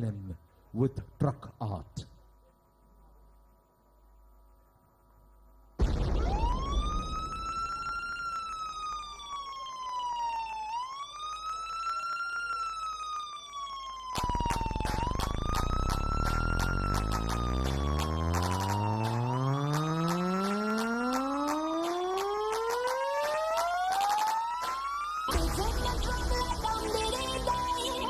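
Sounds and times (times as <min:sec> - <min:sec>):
siren wail: 0:05.8 - 0:25.5
pounding beat with deep bass: 0:14.2 - 0:22.6.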